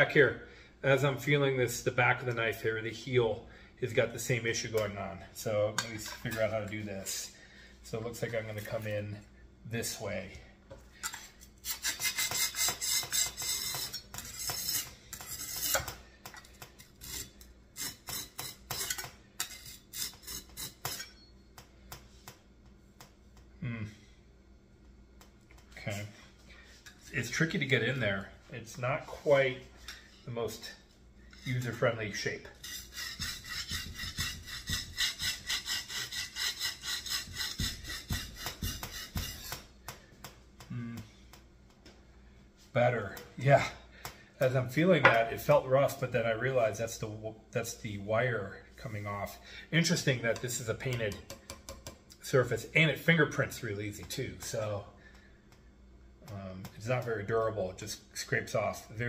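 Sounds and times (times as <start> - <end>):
knife scraping on whetstone: 11.0 - 16.0, 16.8 - 21.3, 32.5 - 39.7.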